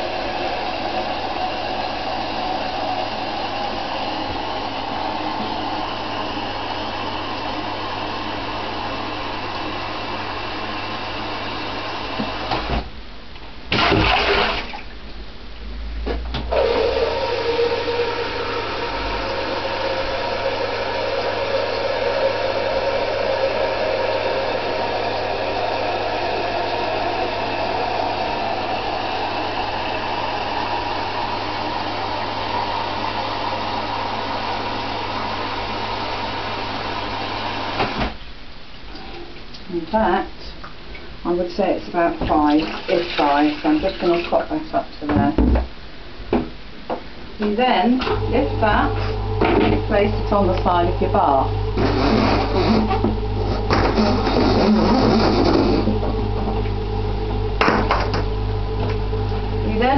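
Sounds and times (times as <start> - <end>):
loud knock: 57.6 - 58.3.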